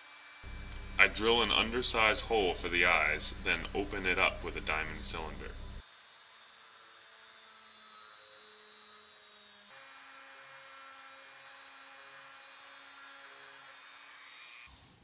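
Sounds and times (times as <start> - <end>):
rotary tool boring wood: 5.5 - 14.8.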